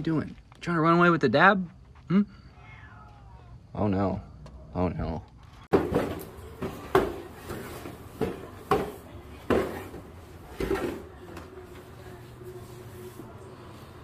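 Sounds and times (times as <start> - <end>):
cardboard carton knocking on tile floor: 5.7 - 10.0.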